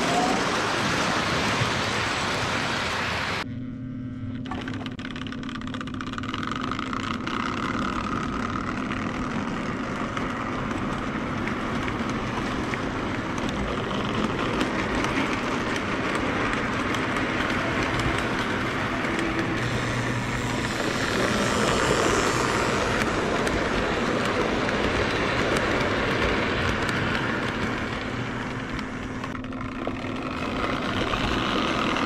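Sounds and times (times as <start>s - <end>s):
steady hum: 3.4s - 9.6s, 17.6s - 32.0s
toy train wheels clattering on rail: 4.5s - 32.0s.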